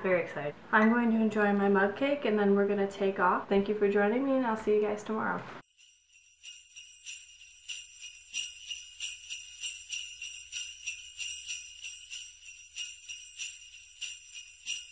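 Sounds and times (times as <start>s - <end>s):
sleigh bells jingling: 5.6s - 14.9s.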